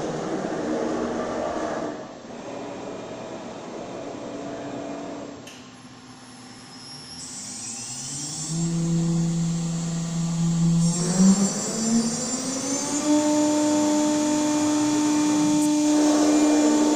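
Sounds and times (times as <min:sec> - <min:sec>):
machine steady hum: 0:00.0 - 0:16.9
machine drives whining: 0:06.5 - 0:16.9.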